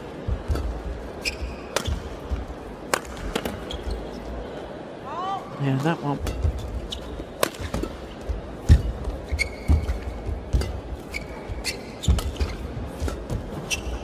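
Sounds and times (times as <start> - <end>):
shoes squeaking on court: 0.4 - 2.4, 3.3 - 4.4, 6.3 - 14.0
racket hitting shuttlecock: 0.4 - 3.7, 6.2 - 14.0.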